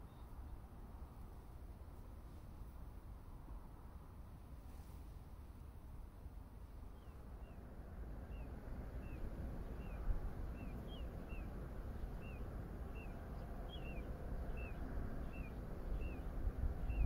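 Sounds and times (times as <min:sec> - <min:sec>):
low unsteady rumble: 0:05.0 - 0:17.0
bird chirping: 0:08.3 - 0:17.0.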